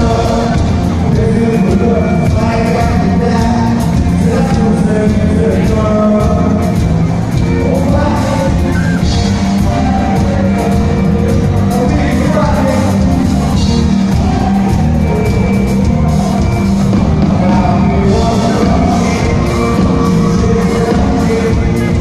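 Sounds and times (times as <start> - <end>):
live band playing: 0.0 - 22.0
person singing: 0.0 - 22.0.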